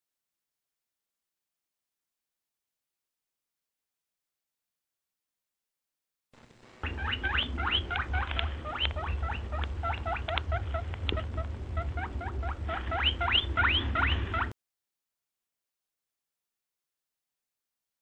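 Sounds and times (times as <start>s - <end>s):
steady low rumble: 6.4s - 14.5s
animal squeaking chirps: 6.8s - 14.5s.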